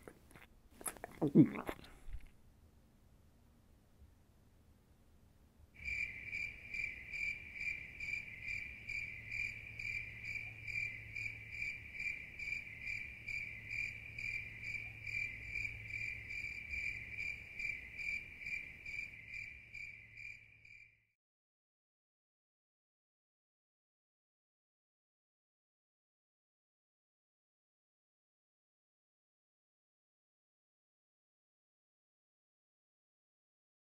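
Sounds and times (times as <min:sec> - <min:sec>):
cricket chirping: 0:05.8 - 0:21.1.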